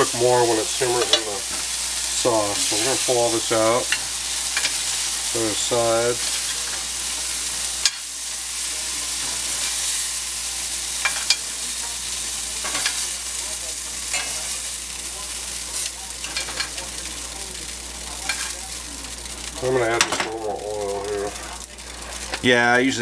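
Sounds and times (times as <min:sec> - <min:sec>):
meat sizzling in a skillet: 0:00.0 - 0:23.0.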